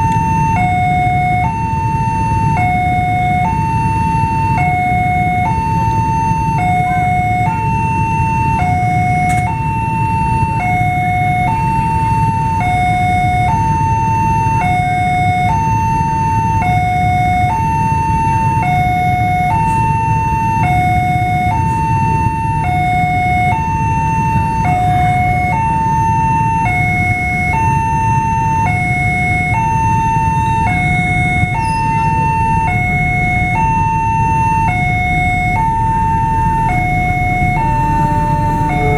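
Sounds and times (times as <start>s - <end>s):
two-tone crossing alarm: 0.0s - 38.9s
low rumble: 34.0s - 38.9s.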